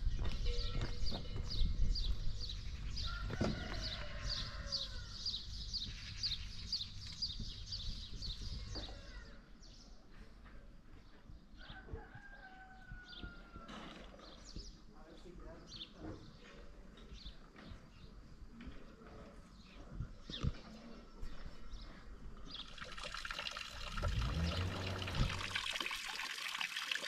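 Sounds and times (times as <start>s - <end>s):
rooster crowing: 3.1s - 5.2s, 11.6s - 13.8s.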